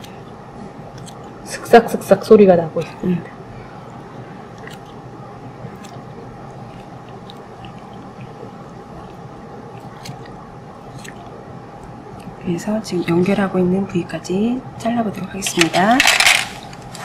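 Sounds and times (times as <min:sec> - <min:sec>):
steady low hum: 0:00.0 - 0:17.0
scissors snipping: 0:00.9 - 0:01.3.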